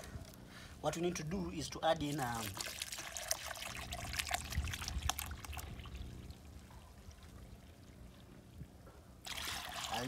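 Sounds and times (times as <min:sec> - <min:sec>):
liquid pouring into plastic jug: 0:02.2 - 0:08.3, 0:09.2 - 0:10.0.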